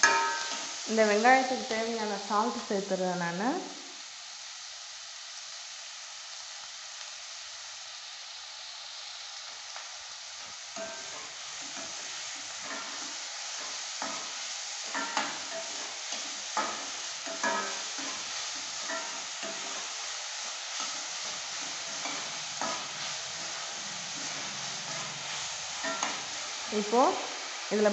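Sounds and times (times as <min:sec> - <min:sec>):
metal spoon scraping a pan: 0:00.0 - 0:00.8, 0:10.8 - 0:26.7
onions sizzling in oil: 0:00.0 - 0:27.9.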